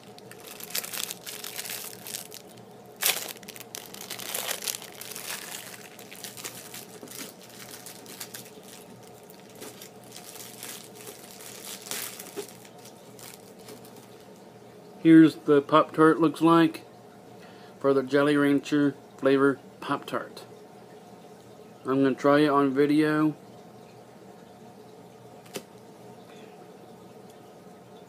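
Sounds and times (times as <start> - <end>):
foil wrapper crinkling: 0.0 - 14.4.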